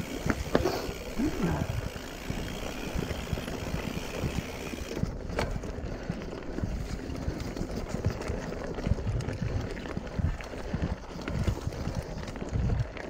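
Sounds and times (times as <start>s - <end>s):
bike knocks and rattles: 0.0s - 9.3s
bike tyres rumbling on dirt trail: 0.0s - 13.0s.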